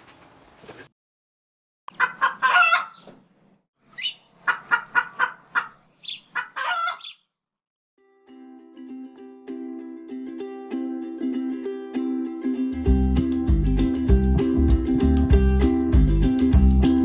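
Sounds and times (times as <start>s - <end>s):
rooster crowing: 2.0s - 3.0s, 6.4s - 7.1s
ukulele music: 8.0s - 17.0s.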